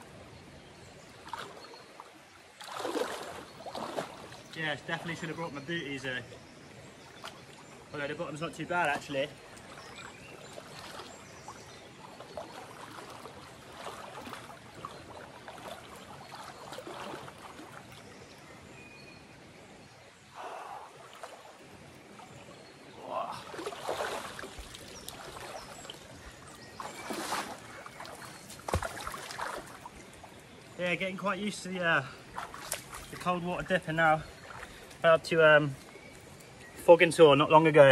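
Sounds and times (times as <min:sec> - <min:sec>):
river water flowing: 0:00.0 - 0:37.9
person wading splashes: 0:01.2 - 0:05.3, 0:08.9 - 0:18.2, 0:20.3 - 0:30.7, 0:32.1 - 0:35.0.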